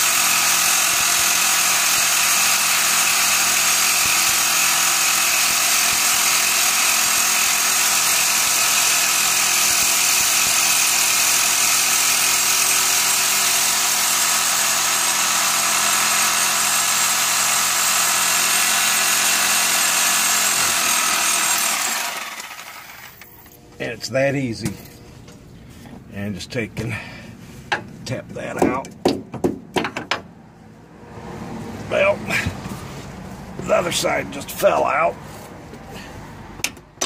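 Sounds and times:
reciprocating saw cutting metal bolt: 0.0s - 23.3s.

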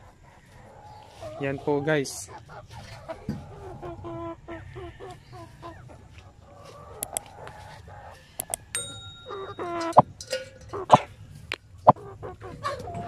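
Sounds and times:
hens clucking: 0.0s - 10.0s, 10.7s - 13.0s
sharp clicks: 7.0s - 7.3s, 8.4s - 8.7s.

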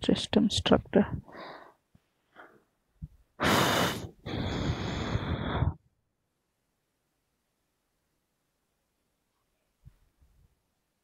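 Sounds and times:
man breathing out heavily: 3.4s - 5.8s.

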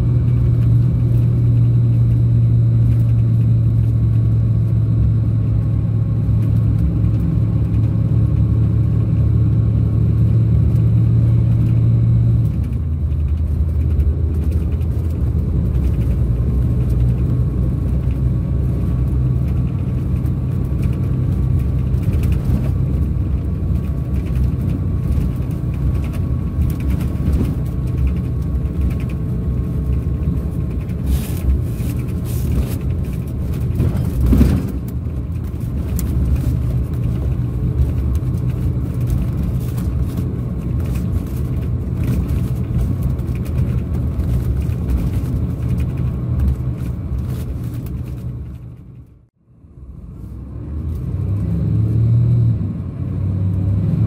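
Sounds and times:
diesel engine drone: 0.0s - 54.0s.

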